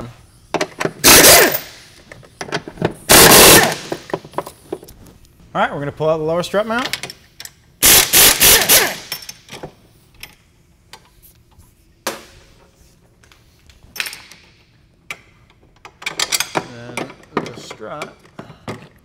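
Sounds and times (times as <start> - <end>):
impact wrench hammering: 0.6 - 1.9, 3.1 - 4.2, 7.8 - 9.3.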